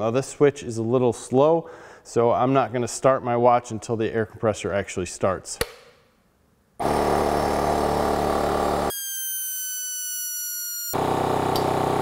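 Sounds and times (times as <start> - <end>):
air compressor running: 6.8 - 9.0, 10.9 - 12.0
high falling tone: 8.4 - 11.0.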